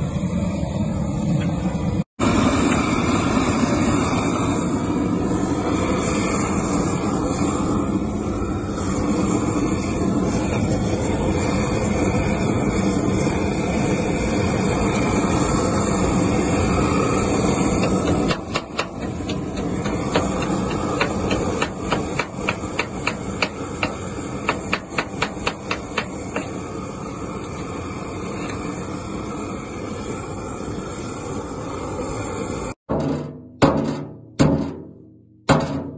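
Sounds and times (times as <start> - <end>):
welding arc crackling: 5.6 - 27.5
sharp metal taps: 17.8 - 26.5, 32.9 - 35.9.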